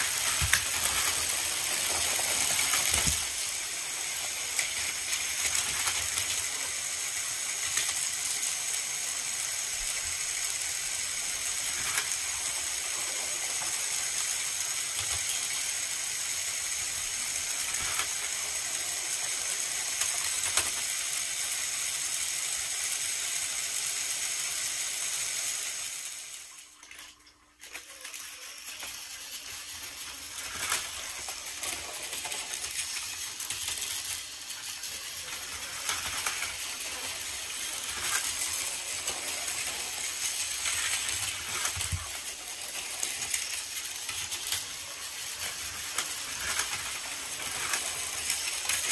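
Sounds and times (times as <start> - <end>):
toy trains whirring on track: 0.0 - 48.9
wheels rattling over track joints: 28.4 - 48.9.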